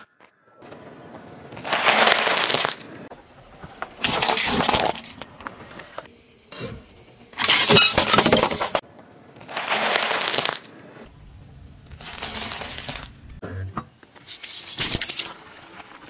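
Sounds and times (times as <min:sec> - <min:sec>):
sharp cracks under tyre: 0:01.5 - 0:03.0, 0:03.6 - 0:06.1, 0:09.4 - 0:10.7
tyre crunching lettuce leaves: 0:12.0 - 0:13.2.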